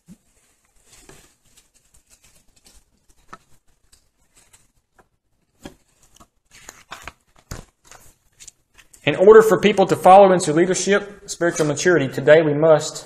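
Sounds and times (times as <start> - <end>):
light rustling: 0.0 - 9.1.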